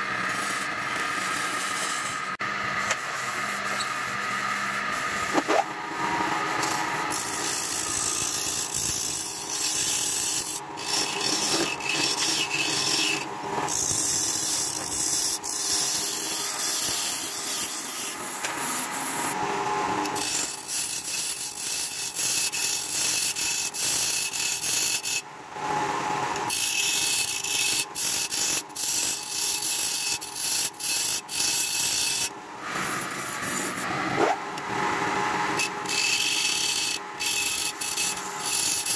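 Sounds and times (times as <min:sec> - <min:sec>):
lathe motor hum: 0:00.1 - 0:20.5
turning tool scraping wood: 0:06.5 - 0:19.4, 0:35.6 - 0:38.9.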